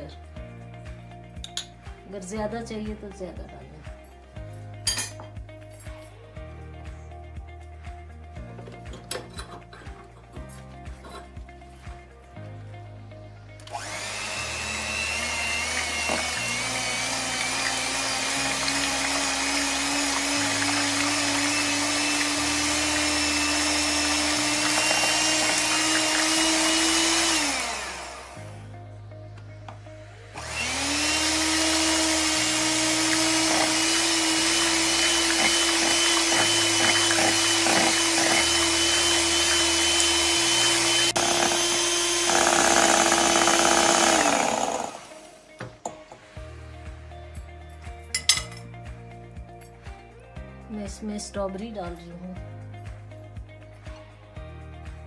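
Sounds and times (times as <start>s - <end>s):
electric hand mixer whining: 13.6s - 28.6s, 30.3s - 45.5s.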